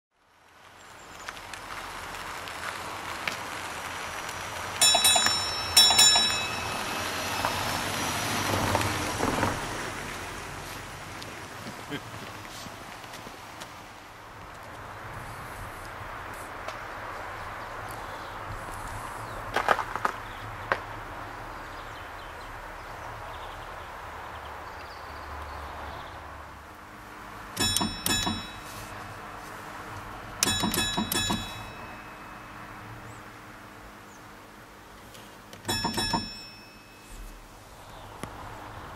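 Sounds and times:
low road noise: 0.1 - 38.9
tram bell ringing: 4.8 - 8.6, 27.6 - 29.1, 30.4 - 33.0, 35.7 - 37.4
car running hum: 26.8 - 38.9.

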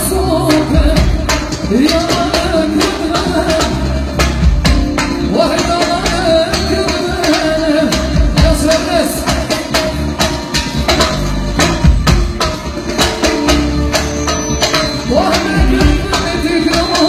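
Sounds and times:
amplified singing: 0.0 - 10.6, 14.6 - 17.0
acoustic drum kit: 0.0 - 17.0
live band music: 0.0 - 17.0.

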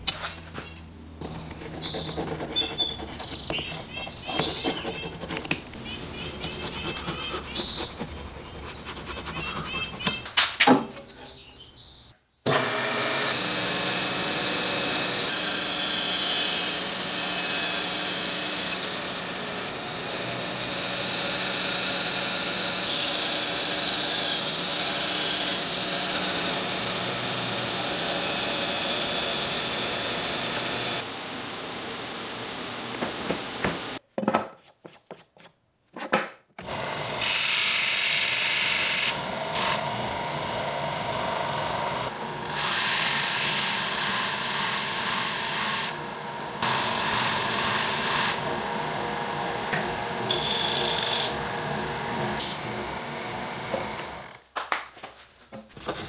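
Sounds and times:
bandsaw cutting wood: 1.2 - 10.2, 12.5 - 34.0, 36.6 - 54.4
scratching and tapping on wood: 1.2 - 11.0.

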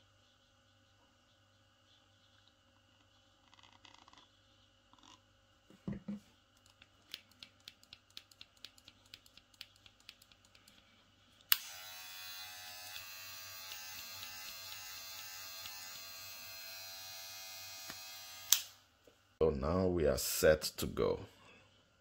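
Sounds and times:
hair clipper switch click: 11.5 - 16.3, 17.8 - 18.8
hair clipper buzzing: 11.5 - 18.8.

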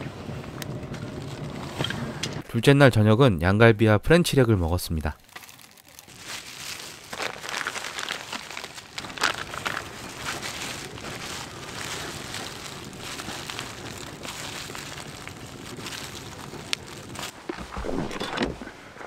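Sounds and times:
plastic gloves crinkling: 5.2 - 18.0.

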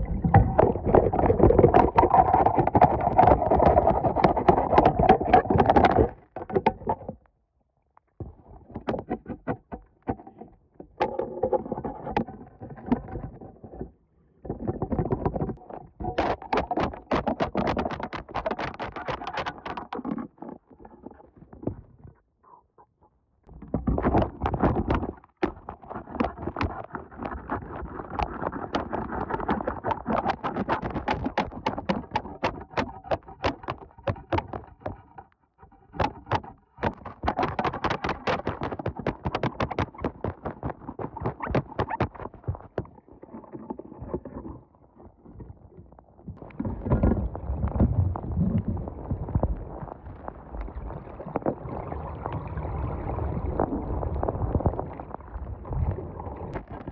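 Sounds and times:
water sloshing: 0.0 - 7.0
clicking and scraping on microphone: 0.0 - 7.3, 8.0 - 51.6, 53.6 - 56.9.

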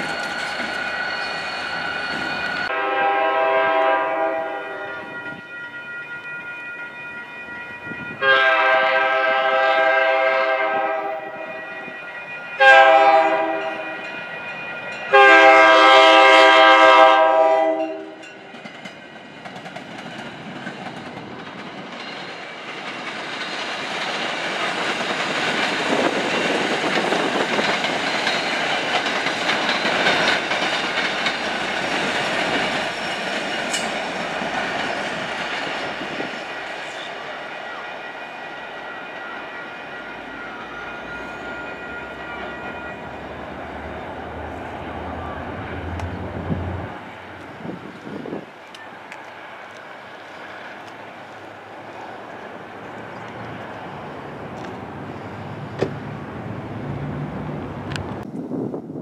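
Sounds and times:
locomotive horn blasts: 2.7 - 5.5, 7.6 - 12.0, 12.6 - 14.1, 15.1 - 18.3
train wheels clacking on rails: 17.7 - 43.9.

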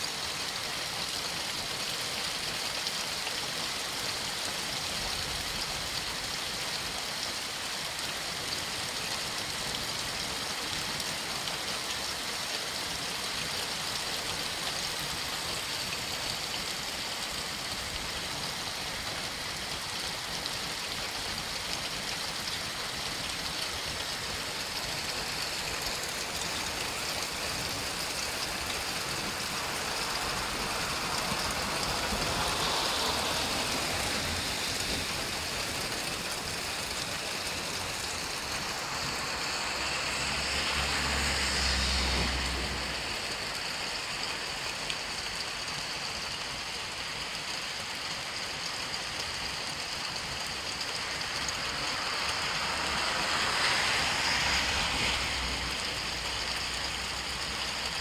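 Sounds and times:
heavy rain pouring on street: 0.0 - 58.0.

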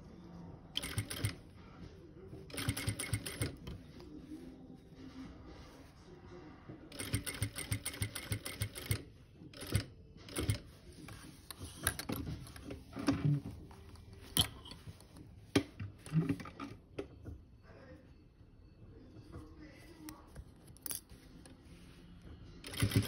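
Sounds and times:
sewing machine stitching: 0.8 - 1.4, 2.5 - 3.8, 6.9 - 10.7, 22.6 - 23.0.

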